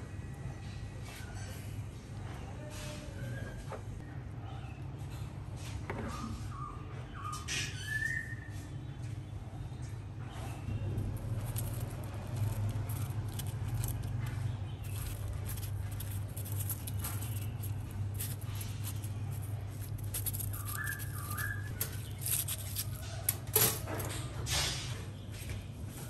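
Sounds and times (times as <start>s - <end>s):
steady low hum: 9.2s - 25.9s
crushed ice crunching: 11.0s - 23.6s.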